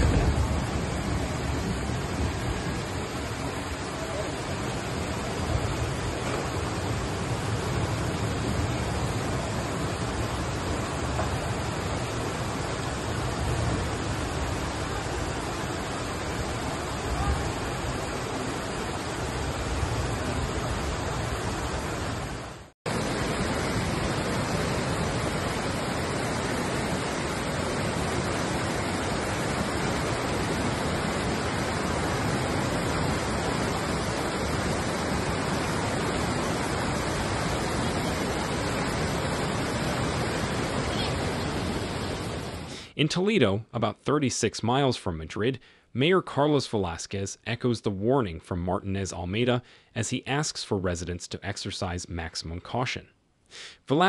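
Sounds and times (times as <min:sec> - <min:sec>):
floodwater rushing: 0:00.0 - 0:42.8
heavy rain: 0:00.0 - 0:43.0.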